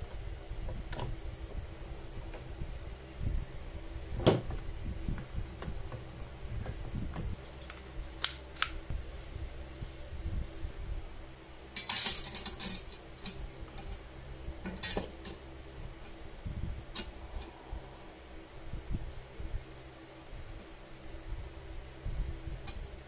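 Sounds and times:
metal clinks and clatter: 11.8s - 14.0s.

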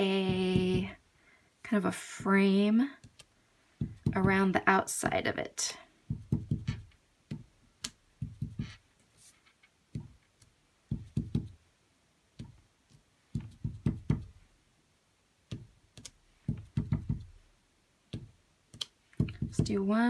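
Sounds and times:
stamp block tapping: 6.1s - 8.8s, 10.9s - 11.6s, 13.3s - 14.4s, 15.5s - 17.4s, 18.1s - 19.8s.

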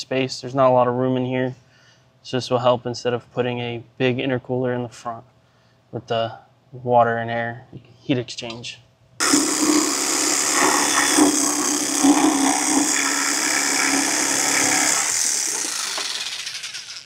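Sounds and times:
power tool cutting sheet metal: 9.2s - 17.0s.

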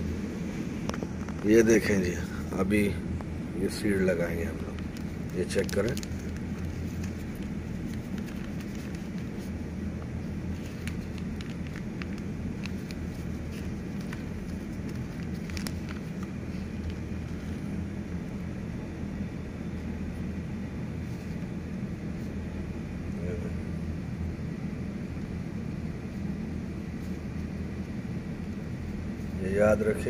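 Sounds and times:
low mechanical hum: 0.0s - 30.0s
plastic packet crinkling: 4.3s - 9.6s, 10.4s - 17.6s.

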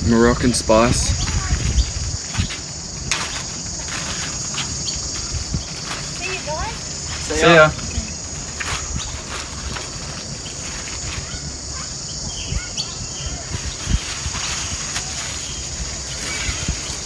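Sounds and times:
crickets buzzing: 0.0s - 17.0s
bird chirps: 3.2s - 6.6s, 8.9s - 17.0s
plastic wrapping crinkling: 13.4s - 17.0s.

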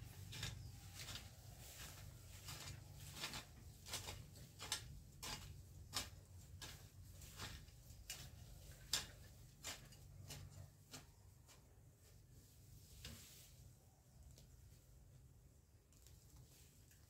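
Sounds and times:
hand tool chopping: 1.9s - 11.7s.

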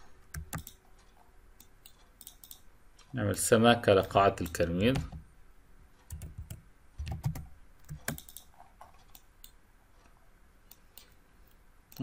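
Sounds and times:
keyboard keystrokes: 0.3s - 0.8s, 6.1s - 8.5s
mouse clicks: 9.1s - 9.6s.

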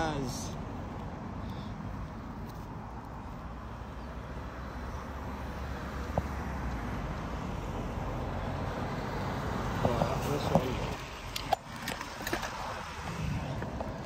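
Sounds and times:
cars driving past: 0.0s - 14.0s.

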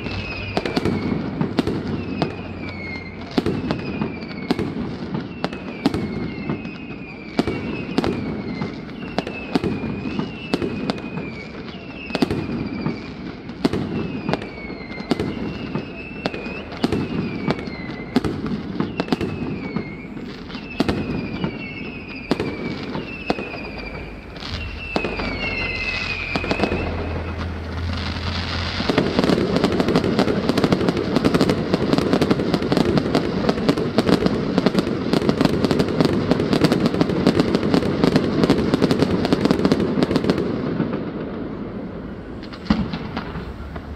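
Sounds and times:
falling whistle: 0.0s - 30.7s
fireworks bangs: 0.0s - 43.9s
fireworks crackling: 0.0s - 43.9s.

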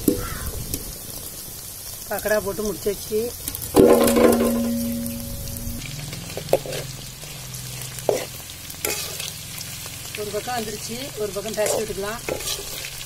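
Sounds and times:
food sizzling in hot oil: 0.0s - 13.0s
loud ringing metallic clang: 3.8s - 5.8s
spoon knocking against pan: 3.8s - 5.8s.

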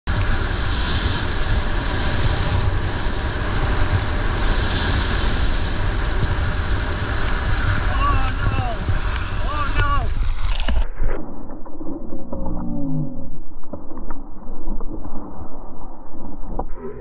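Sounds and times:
wind buffeting microphone: 0.1s - 10.7s
runners hissing on snow: 0.2s - 10.5s.

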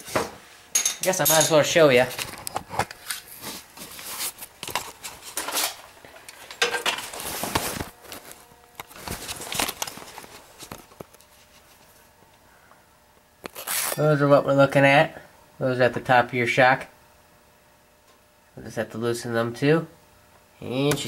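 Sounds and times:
handling rustle: 3.1s - 12.0s.

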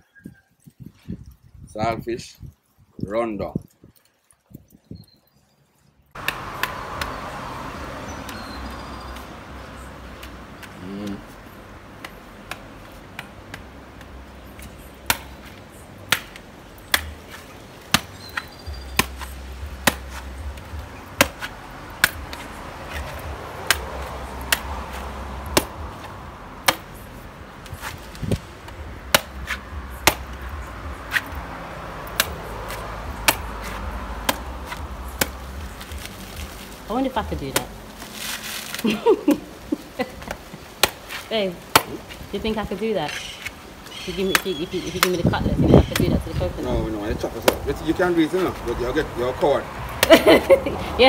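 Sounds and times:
machete chopping coconut husk: 6.2s - 7.3s, 12.0s - 27.0s, 27.6s - 38.9s, 40.2s - 42.3s, 44.2s - 45.2s, 47.3s - 48.8s, 50.0s - 50.4s.

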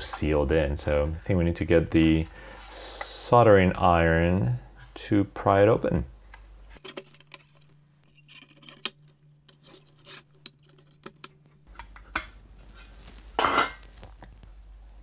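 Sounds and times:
metallic clicks taps and scrapes: 6.3s - 12.3s.

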